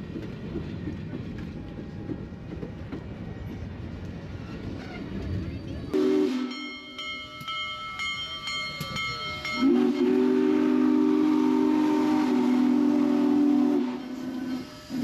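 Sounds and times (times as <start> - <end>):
steam whistle blasts: 6.0 - 6.8, 9.6 - 15.0
high metallic wheel squeal: 14.0 - 15.0.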